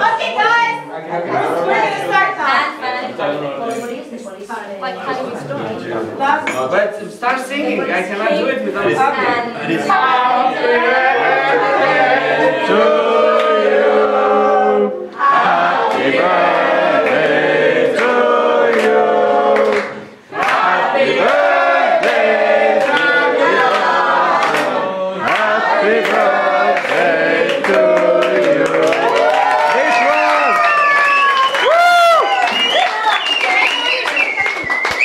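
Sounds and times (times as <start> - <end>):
group singing birthday song: 5.0 - 30.3.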